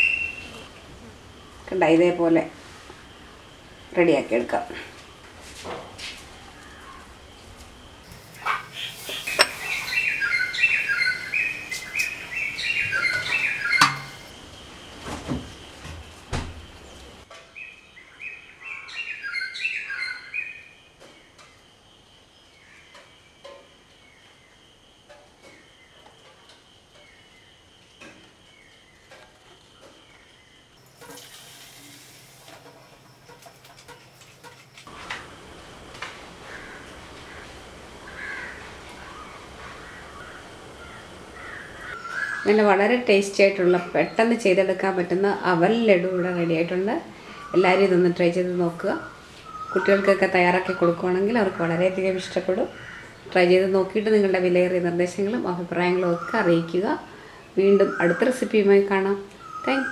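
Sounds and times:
bird chirping: 0:08.0 - 0:14.3.

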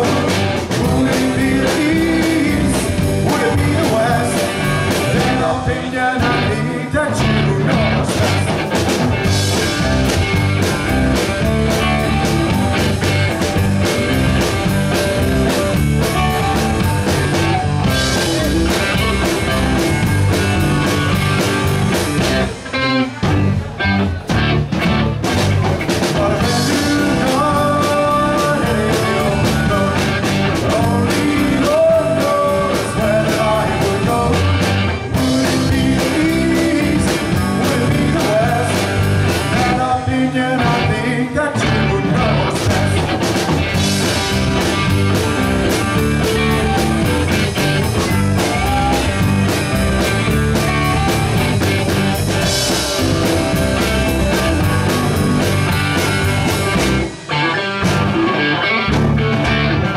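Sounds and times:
man singing lead vocals: 0:00.0 - 0:08.7, 0:17.8 - 0:19.8, 0:26.0 - 0:43.4, 0:48.0 - 0:49.6
drum kit: 0:00.0 - 0:59.9
electric bass: 0:00.0 - 0:59.9
electric guitars: 0:00.0 - 0:59.9.

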